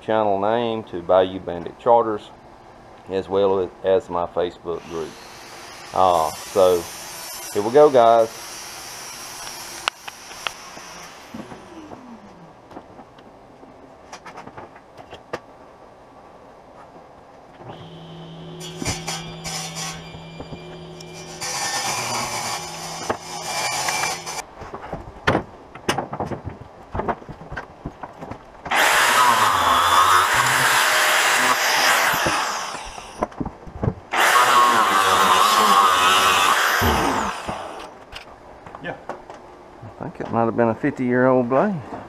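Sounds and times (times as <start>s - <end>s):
angle grinder cutting: 4.8s - 11.8s, 17.8s - 24.4s, 28.7s - 33.2s, 34.1s - 37.9s.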